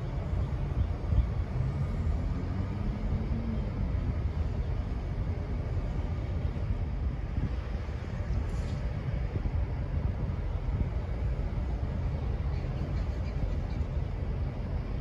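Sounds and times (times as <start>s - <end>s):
diesel locomotive engine rumbling: 0.0s - 15.0s
wind buffeting microphone: 0.0s - 15.0s.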